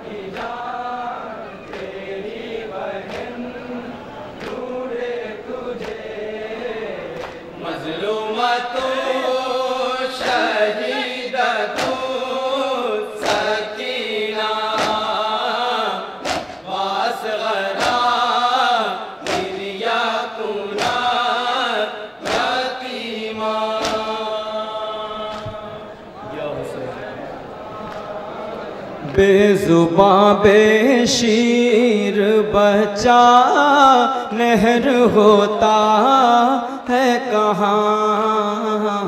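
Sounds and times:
men chanting in unison: 0:00.0 - 0:39.0
sharp chest-beats: 0:16.2 - 0:16.7.

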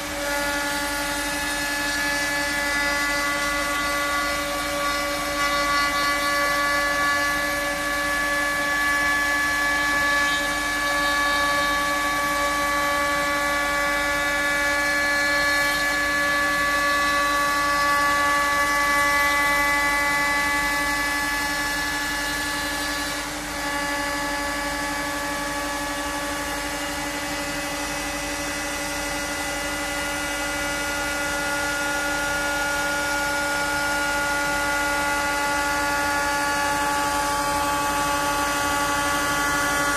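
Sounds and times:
router bit milling wood: 0:00.0 - 0:26.8
cnc router spindle whining: 0:00.0 - 0:39.9.

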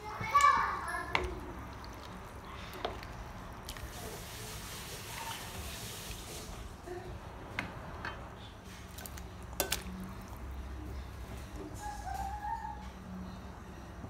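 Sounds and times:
spatula stirring soup in pot: 0:00.0 - 0:06.7.

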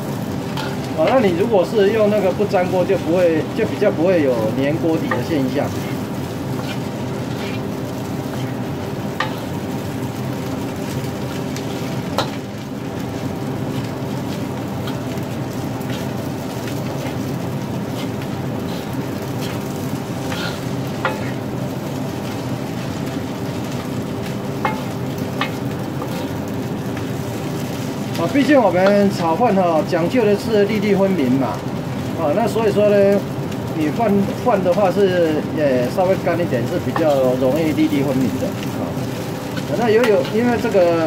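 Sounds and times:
steady hum: 0:00.0 - 0:32.4
rice sizzling in a wok: 0:00.0 - 0:41.0
metal spatula scraping wok: 0:00.5 - 0:01.4, 0:04.9 - 0:09.9, 0:13.6 - 0:21.5, 0:39.2 - 0:40.8.

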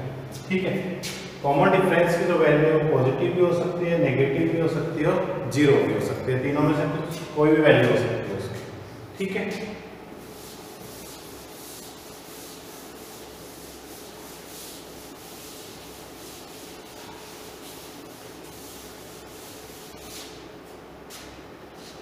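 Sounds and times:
eraser scrubbing chalkboard: 0:10.2 - 0:20.4.

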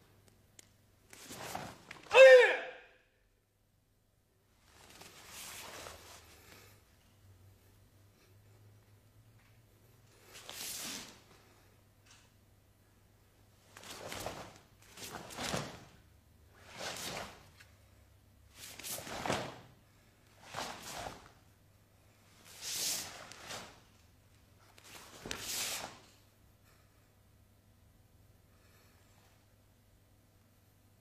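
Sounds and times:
swishing of martial arts movements: 0:01.1 - 0:02.5, 0:04.6 - 0:06.7, 0:10.1 - 0:11.6, 0:13.6 - 0:17.8, 0:18.4 - 0:26.3.

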